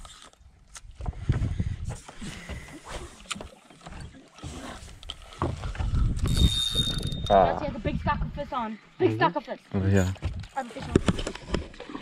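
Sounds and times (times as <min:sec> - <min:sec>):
boat engine rumbling: 0:03.7 - 0:12.0.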